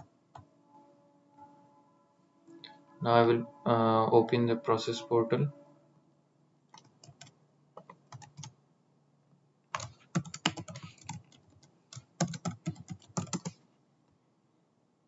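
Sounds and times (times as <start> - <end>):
typing on computer keyboard: 6.7 - 8.5, 9.7 - 13.6.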